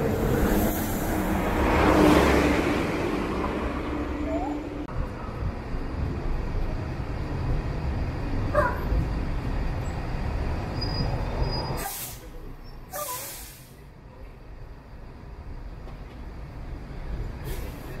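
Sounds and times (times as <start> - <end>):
bus engine rumble: 0.0 - 18.0
brake squeal: 10.6 - 13.8
air brake hisses: 11.8 - 13.8, 17.4 - 18.0.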